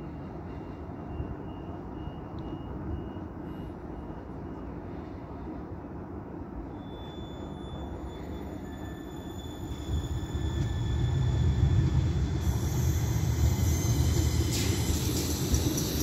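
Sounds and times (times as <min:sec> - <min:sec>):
tram low rumble: 0:00.0 - 0:16.0
faint high whine: 0:06.6 - 0:16.0.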